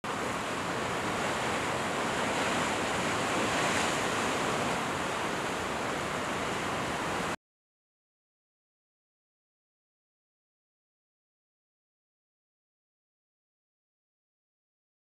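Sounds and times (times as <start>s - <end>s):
surf washing over rocks: 0.0s - 7.4s.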